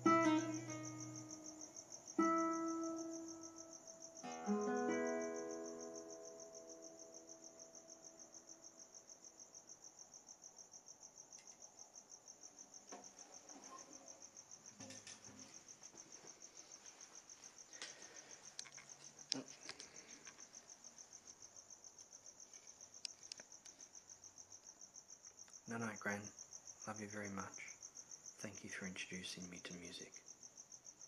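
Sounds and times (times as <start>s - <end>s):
classical guitar: 0.0s - 1.6s, 2.2s - 3.6s, 4.2s - 7.1s
cricket chirping: 0.0s - 31.0s.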